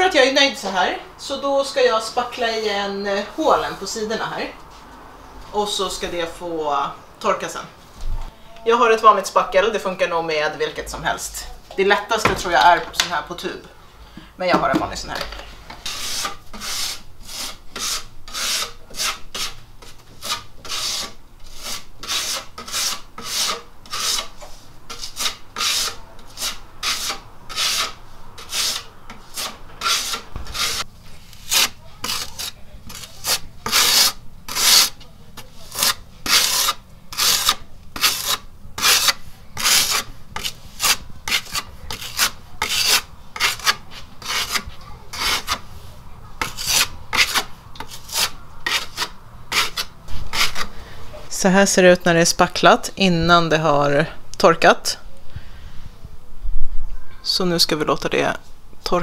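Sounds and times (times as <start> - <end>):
filler knife scraping: 15.7 - 45.7, 46.4 - 50.8.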